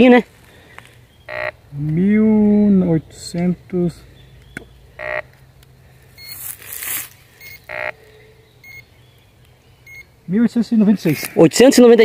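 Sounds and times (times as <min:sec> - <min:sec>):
metal detector beeps: 0:01.3 - 0:01.5, 0:05.0 - 0:05.2, 0:06.2 - 0:06.5, 0:07.4 - 0:08.0, 0:08.6 - 0:08.9, 0:09.8 - 0:10.1
soft rustle: 0:05.5 - 0:07.7.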